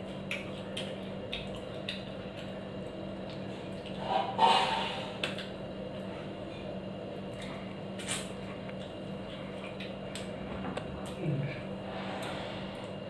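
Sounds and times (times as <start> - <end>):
wet chewing: 0.0 - 4.0
steady low hum: 0.0 - 13.0.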